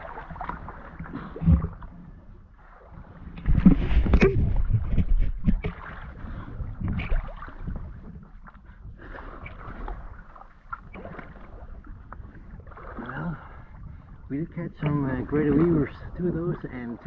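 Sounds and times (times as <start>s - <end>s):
water splashing and sloshing: 0.0s - 17.0s.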